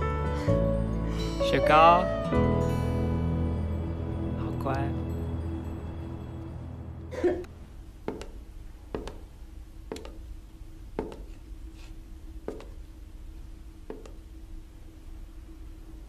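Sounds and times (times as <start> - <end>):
faint steady hum: 0.0 - 16.0
footsteps on wooden floor: 8.0 - 10.3, 10.9 - 12.8, 13.8 - 14.2.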